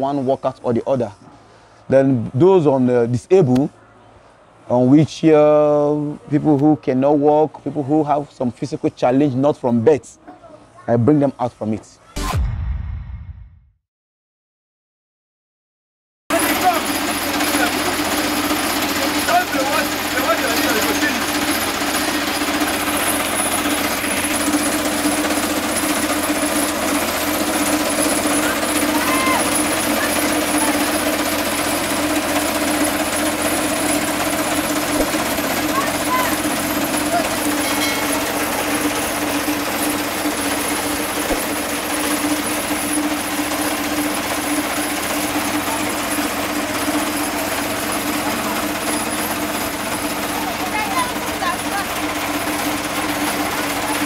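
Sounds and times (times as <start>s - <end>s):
steady motor hum: 16.3s - 54.0s
mechanical grinding: 16.4s - 54.0s.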